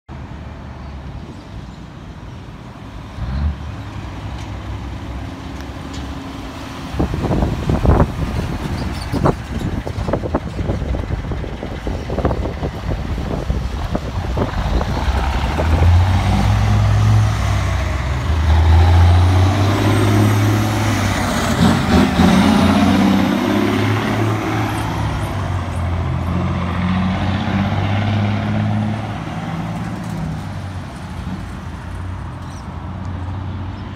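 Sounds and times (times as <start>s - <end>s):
diesel truck engine accelerating: 2.9s - 32.3s.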